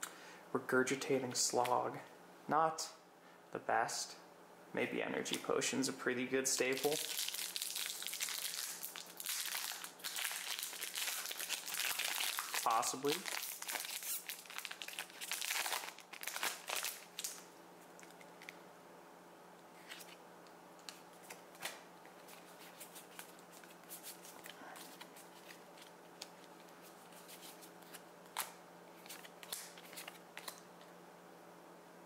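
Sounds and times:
foil wrapper crinkling: 6.6 - 17.4.

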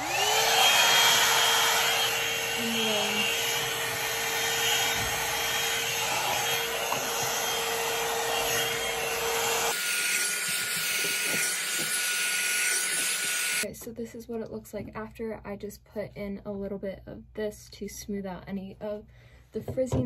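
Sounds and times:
hot-air brush blowing: 0.0 - 13.6.

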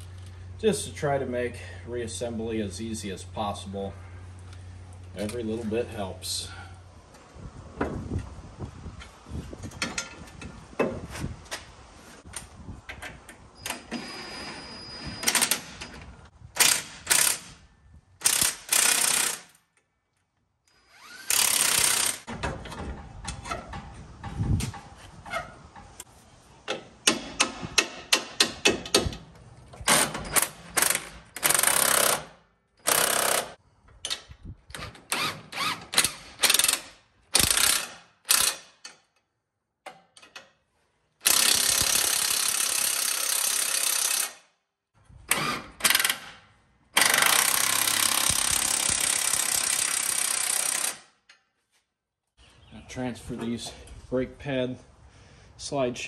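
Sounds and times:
cordless impact wrench hammering: 26.7 - 33.5.

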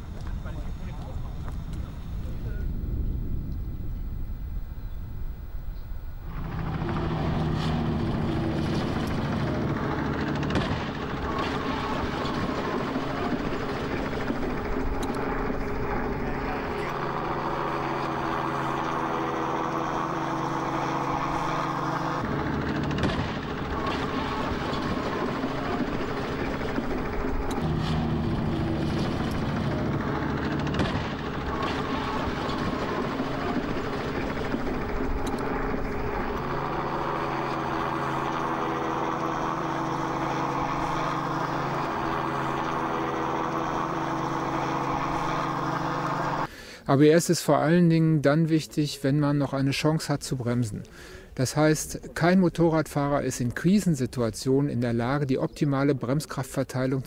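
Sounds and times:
low engine drone: 0.0 - 46.8.

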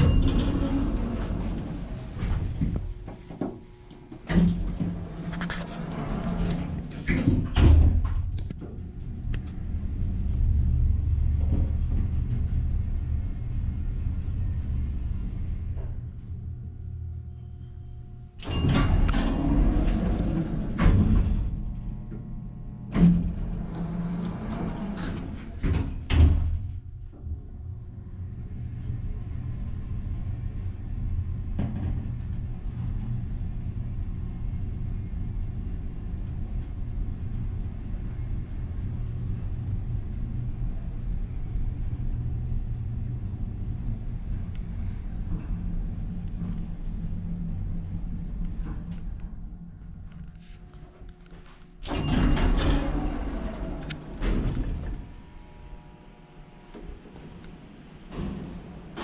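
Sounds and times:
elevator ring: 0.0 - 2.0, 17.4 - 21.1, 51.8 - 55.8
elevator doors sliding: 0.0 - 8.8, 18.3 - 27.4, 28.2 - 59.0
elevator car rumbling: 0.0 - 59.0.

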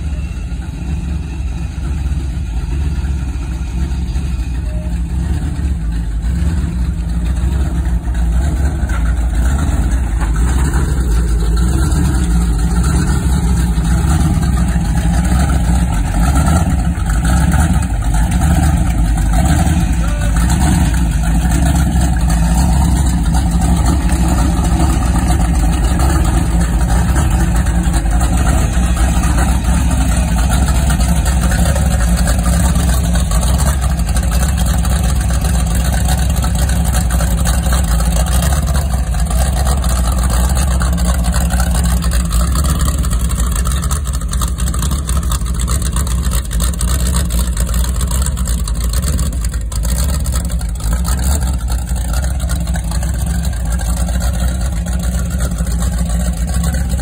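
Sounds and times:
supercharged engine idling: 0.0 - 57.0.

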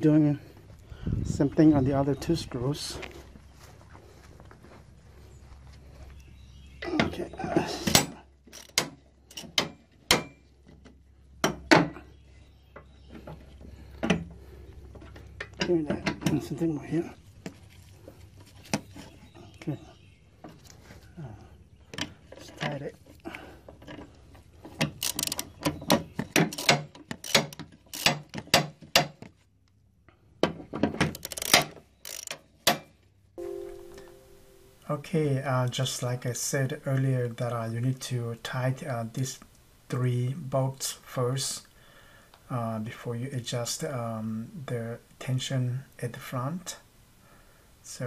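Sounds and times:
ratchet screwdriver clicking: 25.0 - 25.4, 26.5 - 28.2, 31.2 - 32.4
music: 33.4 - 34.8.

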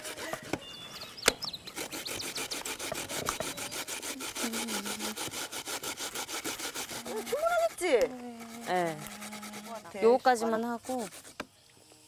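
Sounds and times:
knife cutting on wooden board: 1.7 - 9.9.

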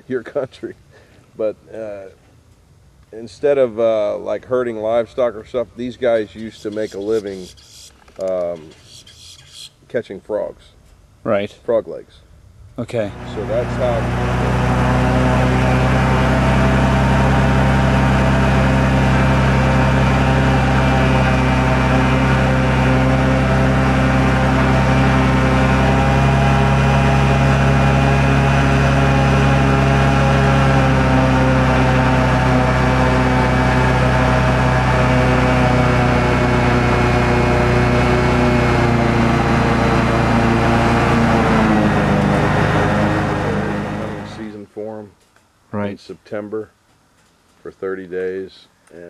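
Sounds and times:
airboat engine and propeller drone: 3.2 - 9.7, 12.8 - 44.8.

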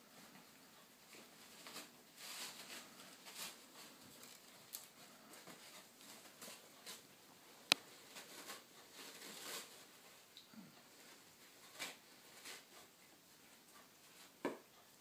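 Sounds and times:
puppy rustling and chewing cloth: 0.1 - 14.5.

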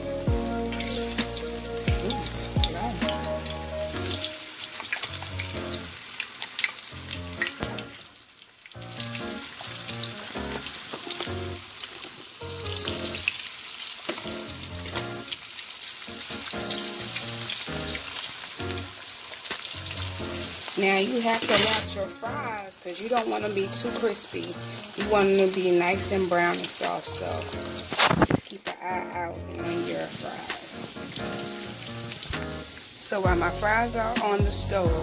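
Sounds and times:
fries sizzling in hot oil: 0.0 - 35.0
oil crackles and pops: 0.7 - 20.9, 26.6 - 28.9.

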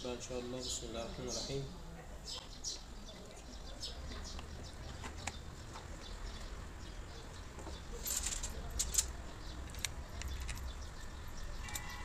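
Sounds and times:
hands clicking parts on metal: 8.0 - 11.0.

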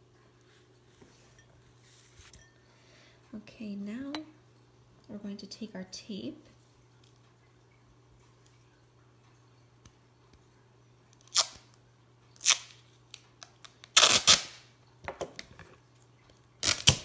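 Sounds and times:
adhesive tape ripping off roll: 11.2 - 11.7, 12.4 - 12.8, 13.6 - 14.6, 16.6 - 17.0.

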